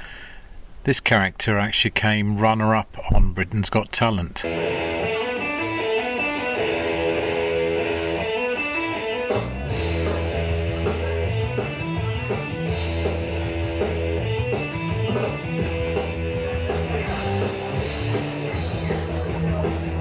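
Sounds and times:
bass guitar: 4.4 - 20.0
drums: 4.4 - 20.0
rock guitar: 4.4 - 20.0.

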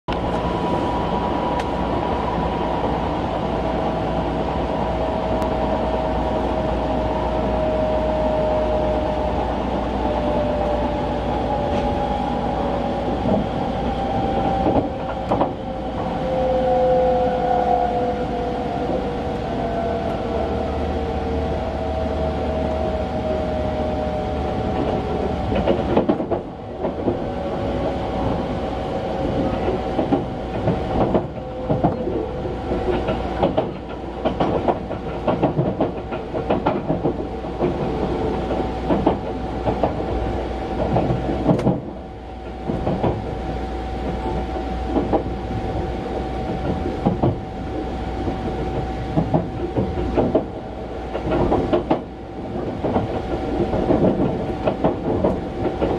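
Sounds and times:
train rumble: 0.1 - 55.9
wheels clacking over rail joints: 24.7 - 28.0, 29.4 - 45.7, 48.2 - 55.9.

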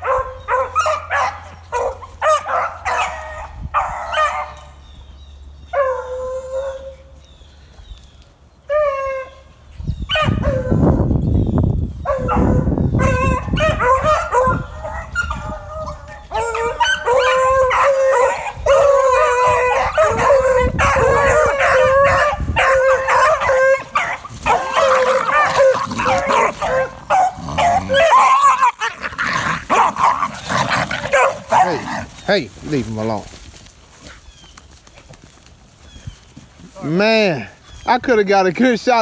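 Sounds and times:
hounds baying: 0.0 - 4.8, 12.0 - 32.8.

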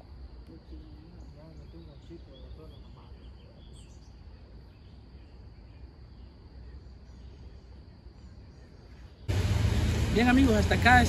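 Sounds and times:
high insect drone: 0.0 - 11.0
faint bird chirps: 0.4 - 9.3
low rumble: 9.3 - 11.0.

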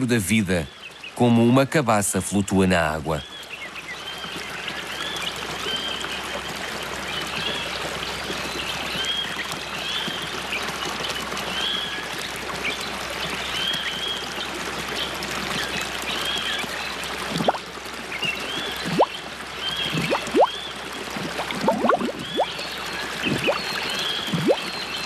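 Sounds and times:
stream water running: 0.0 - 25.0
small birds chirping: 2.7 - 25.0
bubbling plops: 17.1 - 25.0.

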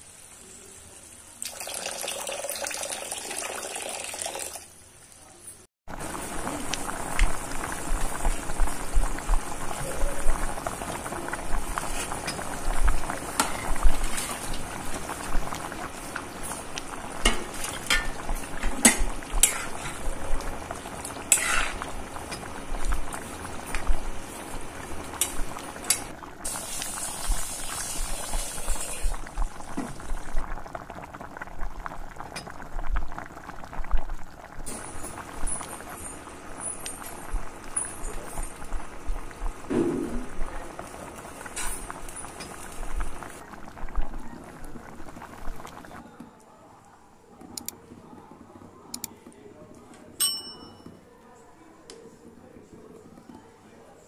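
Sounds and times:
curry bubbling and sizzling: 0.0 - 5.2, 5.9 - 46.0
spoon scraping a pan: 17.2 - 20.2, 21.3 - 22.4.

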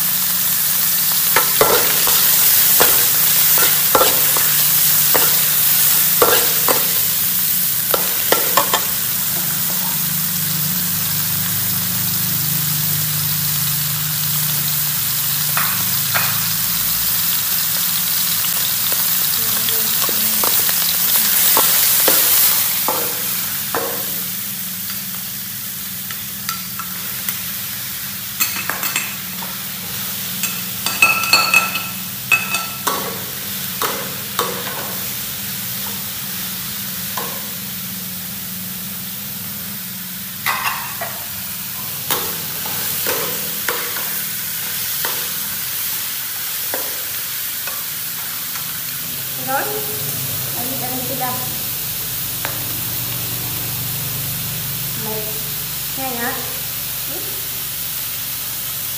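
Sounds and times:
meat sizzling in a wok: 0.0 - 58.9
spatula knocking metal wok: 6.2 - 7.0, 7.9 - 10.0, 21.5 - 24.2, 30.4 - 35.0.

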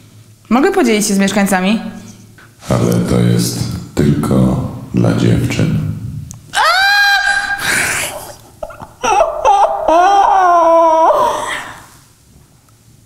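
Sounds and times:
woman squealing: 6.5 - 11.9
wavering cry: 6.5 - 12.0
woman laughing: 6.6 - 11.9.

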